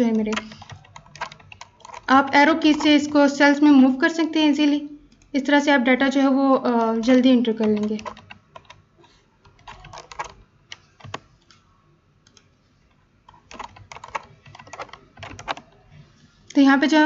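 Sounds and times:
typing on computer keyboard: 0.0s - 3.6s, 7.5s - 8.8s, 9.4s - 11.6s, 13.3s - 15.8s.

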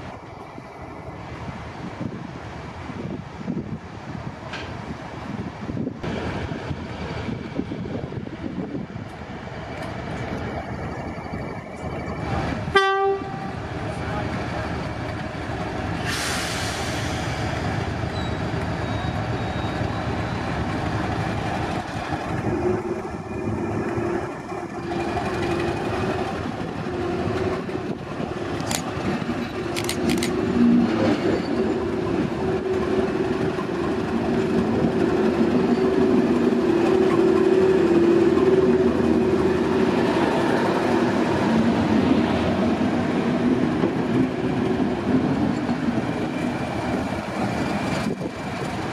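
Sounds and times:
diesel locomotive engine droning: 4.9s - 48.9s
sharp clicks: 29.7s - 30.4s.

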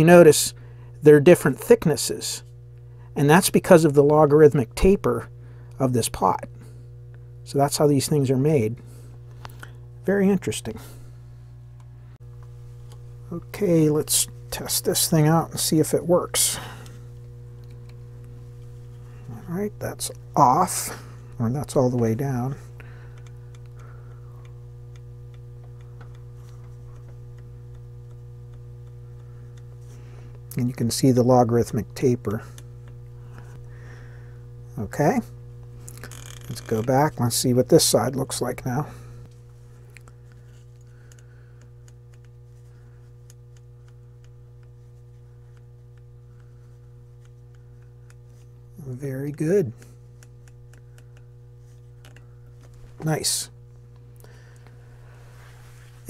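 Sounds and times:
steady electrical hum: 0.0s - 56.0s
potentiometer shaft clicking: 21.2s - 33.7s, 39.9s - 53.1s.

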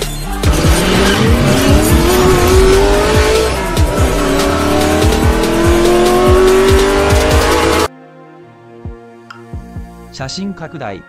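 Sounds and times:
electronic music with kick drum: 0.0s - 7.9s
race car engine revving: 0.4s - 7.9s.

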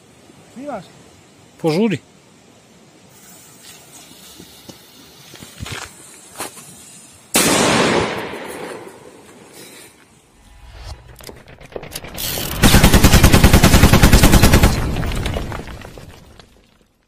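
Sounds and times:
firecracker bang: 7.4s - 9.2s.

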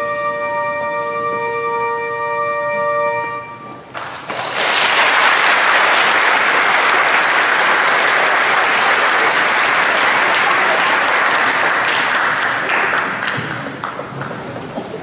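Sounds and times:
congregation applauding: 3.9s - 14.7s.

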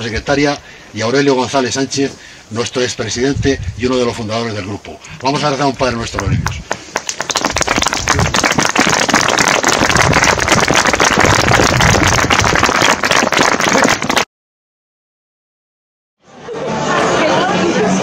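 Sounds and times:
crowd applauding: 6.2s - 14.3s.

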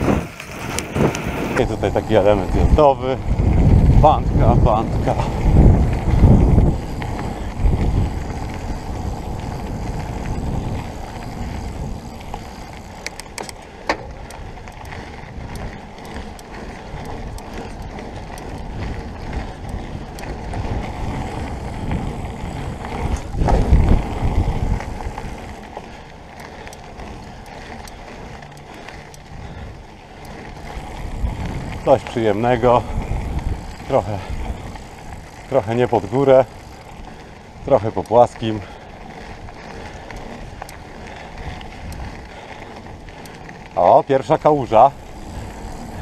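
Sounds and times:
wind rush: 0.0s - 13.0s, 16.8s - 25.7s, 30.5s - 43.1s
bike clicks: 0.0s - 46.0s
bike tyres on dirt trail: 0.0s - 46.0s.

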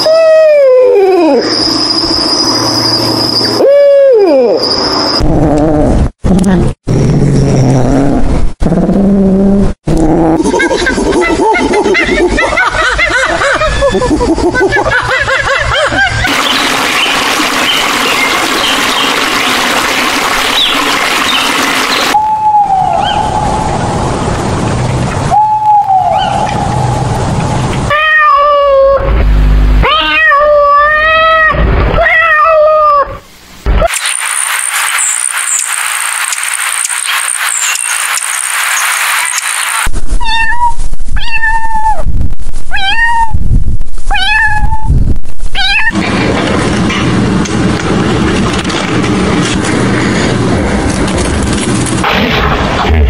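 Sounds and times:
owl hooting: 22.2s - 23.6s, 25.3s - 26.9s
kitten meowing: 40.2s - 42.1s, 42.7s - 43.4s, 44.1s - 44.9s, 45.6s - 46.0s.

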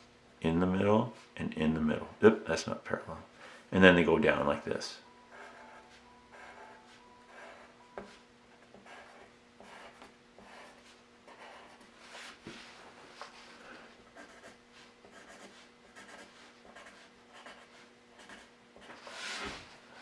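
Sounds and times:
pencil scratching on paper: 5.3s - 12.4s, 14.1s - 19.6s.

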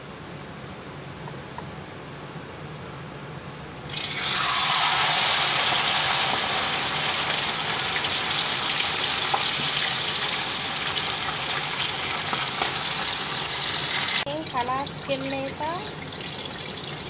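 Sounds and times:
fish sizzling in hot oil: 3.9s - 17.0s.

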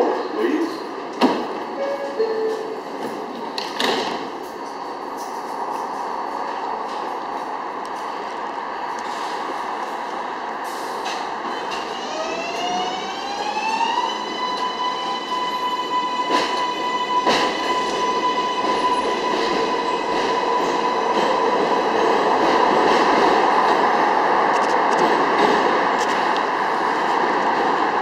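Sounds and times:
train electric propulsion whine: 10.4s - 22.2s.

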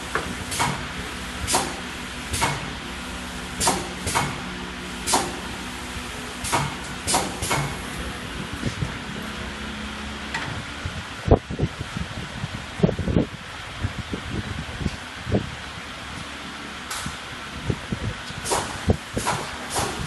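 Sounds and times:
machinery hum: 0.0s - 20.0s
short sharp pneumatic bursts: 3.5s - 5.6s, 6.2s - 7.8s, 18.4s - 20.0s.

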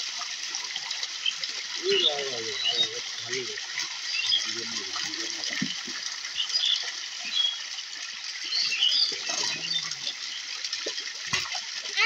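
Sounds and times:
pond water splashing and sloshing: 0.0s - 12.0s
small birds chirping: 1.2s - 5.4s, 6.3s - 10.6s.

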